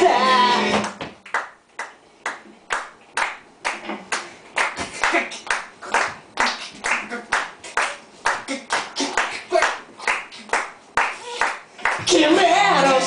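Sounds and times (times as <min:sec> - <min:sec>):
audience rhythmic handclapping: 0:00.8 - 0:12.3.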